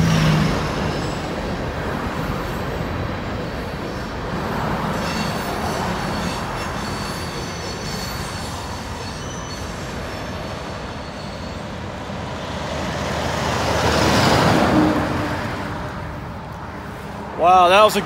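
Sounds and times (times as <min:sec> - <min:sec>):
truck passing by: 0:00.0 - 0:03.2, 0:11.9 - 0:18.0
train wheels rumbling on bridge: 0:00.0 - 0:16.7
faint high squeal: 0:05.0 - 0:11.9.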